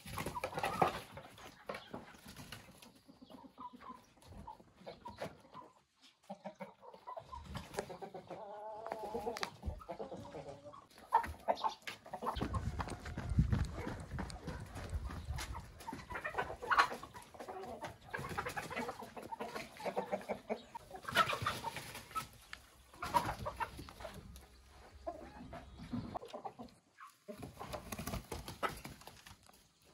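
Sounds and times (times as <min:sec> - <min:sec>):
hens and roosters clucking: 0:00.0 - 0:29.9.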